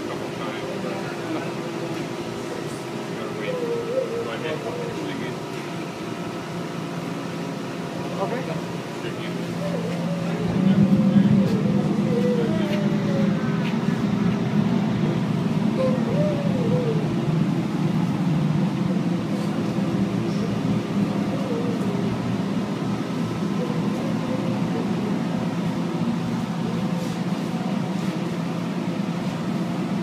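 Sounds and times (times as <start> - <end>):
faint voices: 0.0 - 29.9
furnace machinery droning: 0.0 - 30.0.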